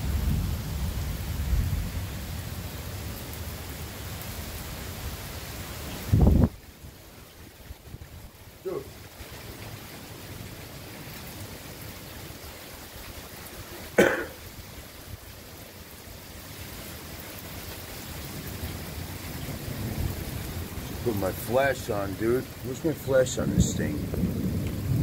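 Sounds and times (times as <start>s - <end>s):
thunder rumbling: 0.0s - 2.7s, 18.3s - 25.0s
heavy rain pouring: 0.0s - 25.0s.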